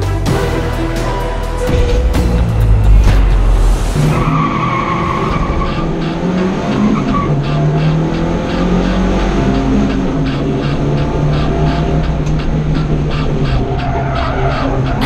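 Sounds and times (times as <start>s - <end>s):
car engine running hard: 0.0s - 15.0s
loud rush of noise: 1.6s - 6.3s
tyres squealing: 4.0s - 15.0s.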